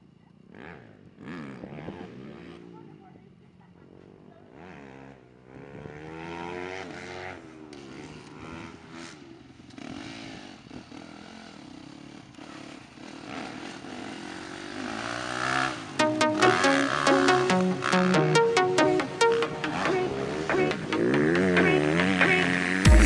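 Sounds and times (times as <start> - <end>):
motocross bike engine revving: 20.3 - 23.0.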